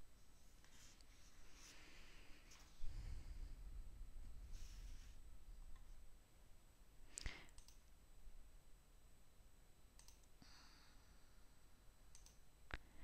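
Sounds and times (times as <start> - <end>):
computer mouse clicks: 7.2 - 7.9, 10.0 - 10.4, 12.1 - 12.8.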